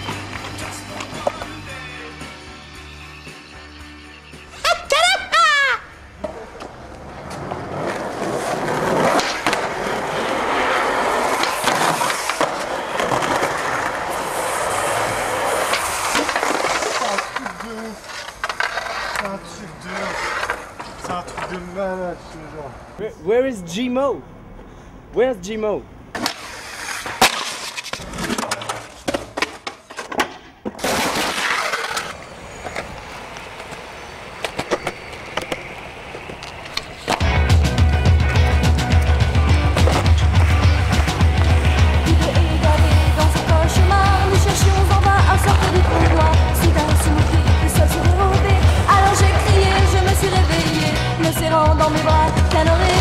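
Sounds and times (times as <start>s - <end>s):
skateboard wheels rolling on pavement: 0.0s - 3.7s, 6.0s - 23.0s, 26.0s - 53.0s
skateboard clacking on concrete: 15.0s - 19.4s, 27.0s - 37.3s
skateboard clacks: 26.2s - 42.5s.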